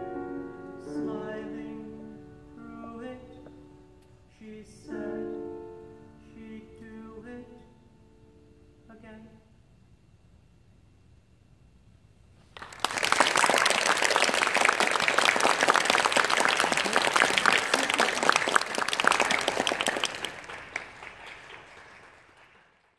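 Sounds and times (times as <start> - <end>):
audience applauding: 12.5 - 22.9.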